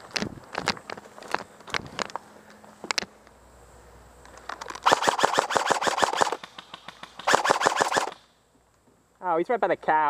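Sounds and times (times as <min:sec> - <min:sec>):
airsoft rifle full-auto bursts: 0:04.8 - 0:08.2.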